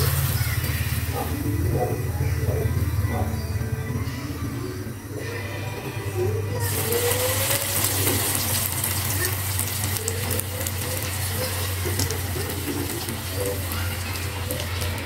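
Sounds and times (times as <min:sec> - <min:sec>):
batter sizzling in hot oil: 0:00.0 - 0:01.0, 0:06.6 - 0:15.0.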